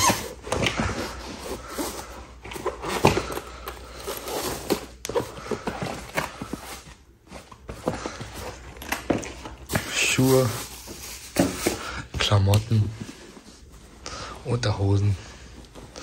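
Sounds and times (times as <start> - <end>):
clothes and bags rustling: 0.0 - 14.0.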